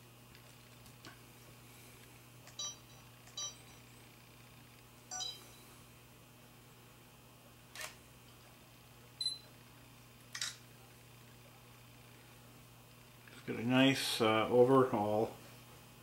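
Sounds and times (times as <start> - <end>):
camera shutter: 7.7 - 8.0, 10.3 - 10.6
camera electronic beeps: 9.2 - 9.5.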